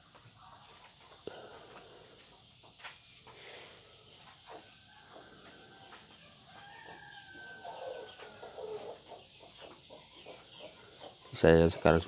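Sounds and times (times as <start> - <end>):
faint rooster crowing: 3.6 - 12.0.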